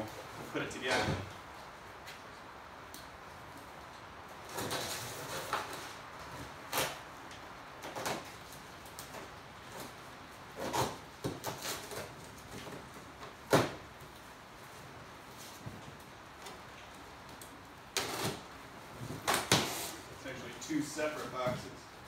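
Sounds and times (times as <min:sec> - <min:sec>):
cardboard scraping and rustling: 0:04.4 - 0:07.0, 0:18.0 - 0:20.1.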